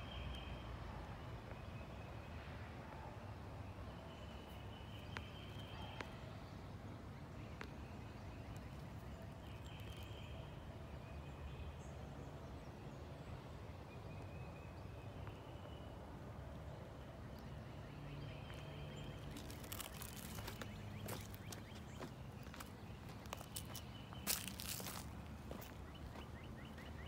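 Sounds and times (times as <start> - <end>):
footsteps on loose dirt: 18.4 - 27.0.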